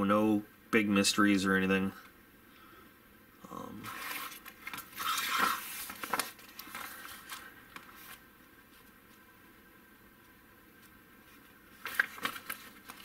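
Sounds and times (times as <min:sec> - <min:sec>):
paper rustling: 0:03.9 - 0:09.2, 0:10.8 - 0:13.0.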